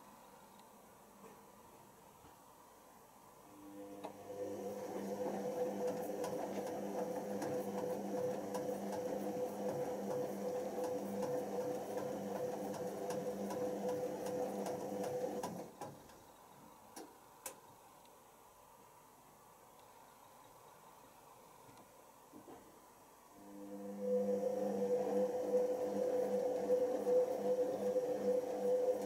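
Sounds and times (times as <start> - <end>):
washing machine drum whine: 3.6 - 16.2, 23.4 - 29.0.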